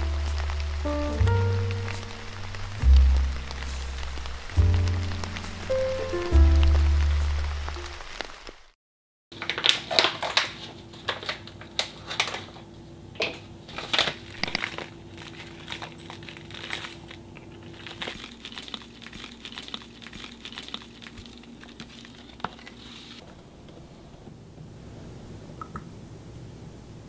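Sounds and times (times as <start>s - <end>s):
powder shaken into mug: 13.9s - 22.8s.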